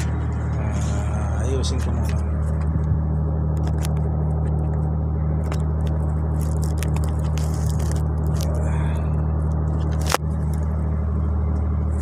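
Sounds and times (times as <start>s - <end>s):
low machinery drone: 0.0s - 12.0s
handling clicks and scrapes: 5.4s - 8.6s, 9.4s - 10.7s.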